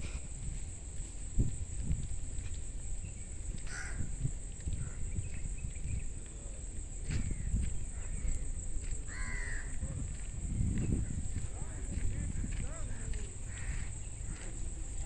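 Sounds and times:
footsteps: 0.0 - 2.8, 4.5 - 7.8, 9.7 - 15.0.

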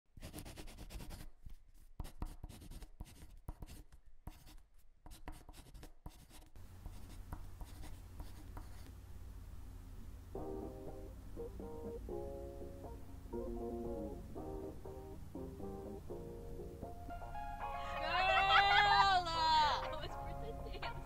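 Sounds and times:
pen scratching on paper: 0.2 - 8.9
faint low hum: 5.5 - 21.0.

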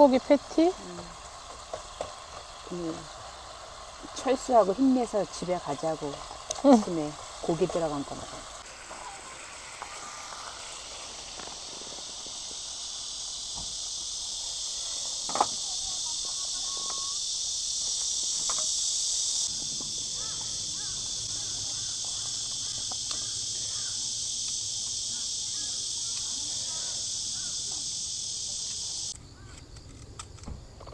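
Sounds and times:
burger patties sizzling in a pan: 0.0 - 29.1.

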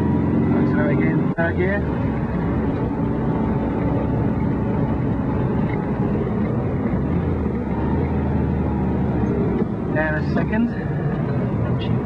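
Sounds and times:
car engine running: 0.0 - 12.0
road noise: 0.0 - 12.0.

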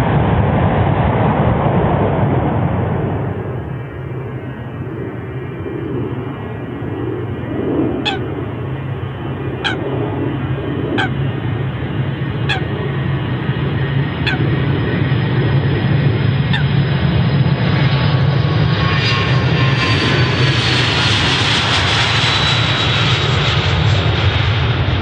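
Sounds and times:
jet engines rumble and whine: 0.0 - 25.0
bird calls: 8.0 - 8.4, 9.5 - 9.9, 10.9 - 11.2, 12.4 - 12.7, 14.2 - 14.5, 16.5 - 16.7.

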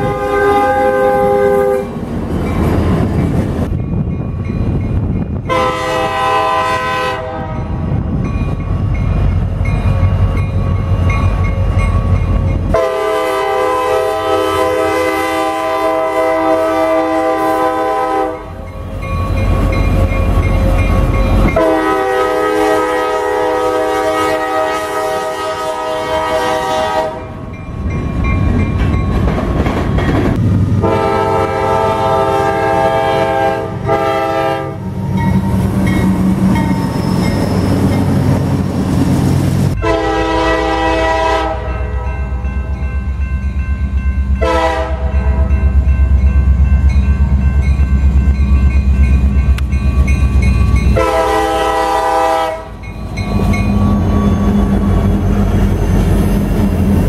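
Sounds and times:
locomotive air horn blasts: 0.0 - 1.9, 5.5 - 7.7, 12.7 - 18.6, 21.4 - 27.3, 30.8 - 34.9, 39.8 - 42.2, 44.4 - 45.6, 50.9 - 52.8
train rumble and wheel clatter: 0.0 - 57.0.

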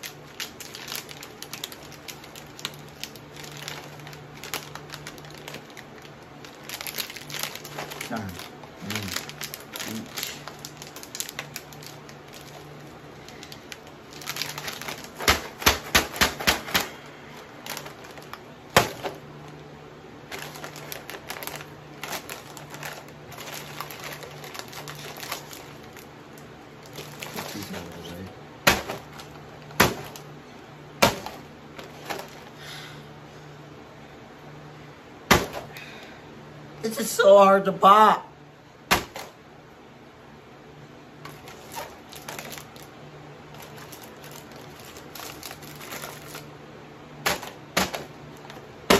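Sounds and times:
plastic snack bag crinkling: 0.0 - 30.4, 31.0 - 32.6, 41.2 - 46.6, 47.2 - 48.9.

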